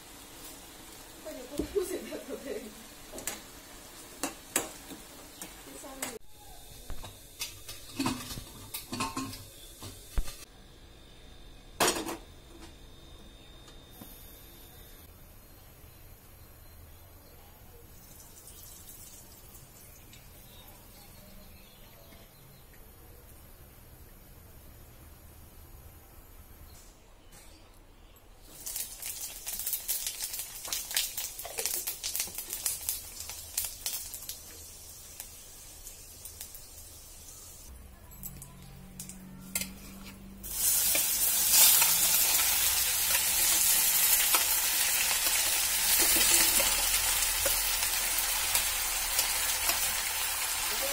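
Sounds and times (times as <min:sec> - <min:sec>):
seeds crackling in hot pan: 0:00.0 - 0:10.5, 0:28.4 - 0:37.8, 0:39.0 - 0:50.9.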